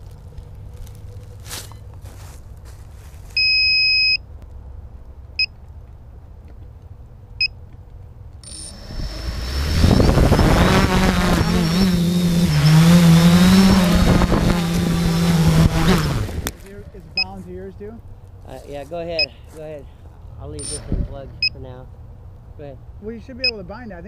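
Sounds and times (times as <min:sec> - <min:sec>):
electronic beeps: 0:03.4 - 0:04.2, 0:08.4 - 0:09.0, 0:20.6 - 0:20.8, 0:21.4 - 0:21.6
drone motors humming: 0:07.1 - 0:23.4.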